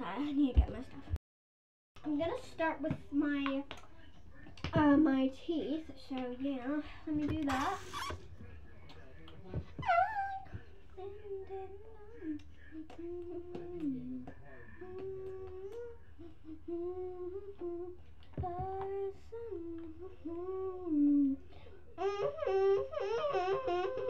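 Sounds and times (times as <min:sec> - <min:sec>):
girl humming: 0:09.8 - 0:24.0.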